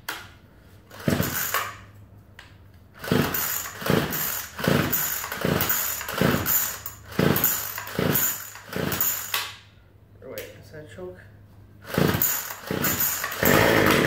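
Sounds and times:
recoil starter cord pulls: 0:00.9 - 0:01.8, 0:03.0 - 0:09.5, 0:11.9 - 0:14.0
engine turning over: 0:00.9 - 0:01.9, 0:02.9 - 0:09.4, 0:11.8 - 0:14.0.

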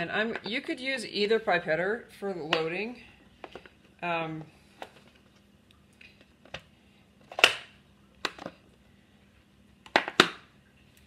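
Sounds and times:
plastic box clicks and knocks: 0:09.9 - 0:10.4.

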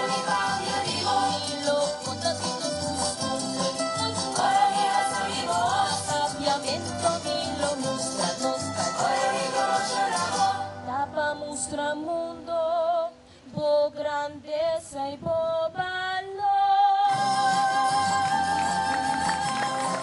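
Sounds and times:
backing music: 0:00.0 - 0:11.3, 0:17.1 - 0:20.0
woman singing into microphone: 0:00.0 - 0:20.0.

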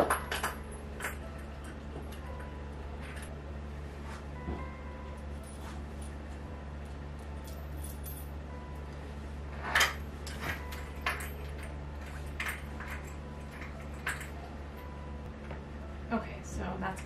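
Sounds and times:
steady low hum: 0:00.0 - 0:17.0
metal hardware clinking: 0:09.6 - 0:14.4.

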